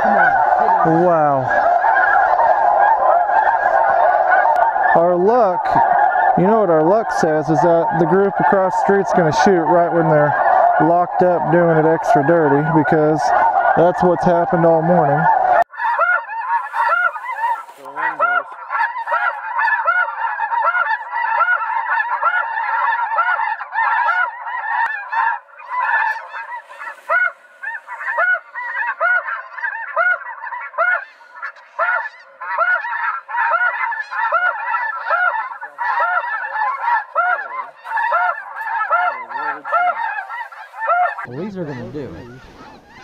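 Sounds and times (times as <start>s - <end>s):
flock of geese honking: 0.0s - 43.0s.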